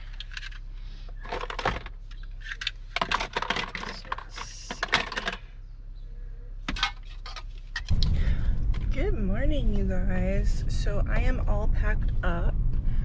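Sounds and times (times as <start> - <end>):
items clattering in plastic bin: 0.0 - 5.4.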